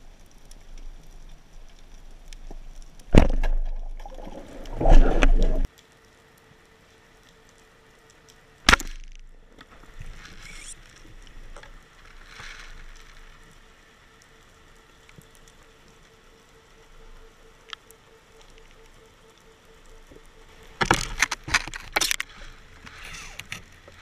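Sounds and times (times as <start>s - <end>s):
faint scrapes and knocks: 9.6s - 13.3s, 20.8s - 24.0s.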